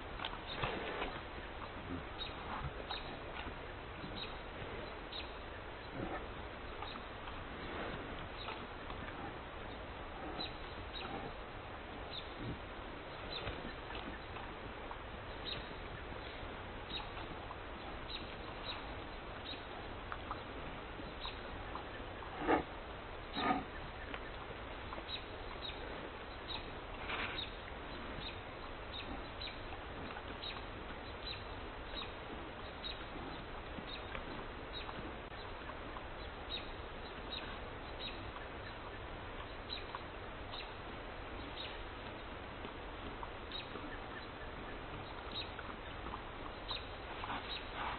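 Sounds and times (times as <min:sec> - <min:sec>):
steady background hiss: 0:00.0 - 0:47.9
pig calls: 0:21.7 - 0:22.7, 0:23.3 - 0:23.8.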